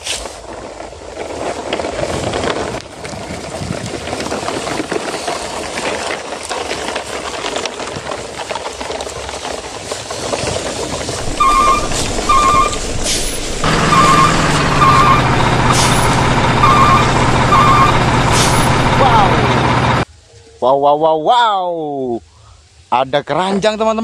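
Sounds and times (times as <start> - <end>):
truck engine hum: 10.7 - 20.1
truck reversing alarm beeps: 11.2 - 20.0.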